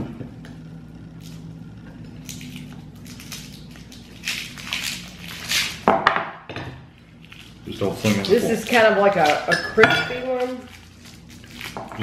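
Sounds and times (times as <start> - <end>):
faint steady hum: 0.0 - 12.0
candy wrapper crinkling: 7.1 - 9.5, 10.2 - 12.0.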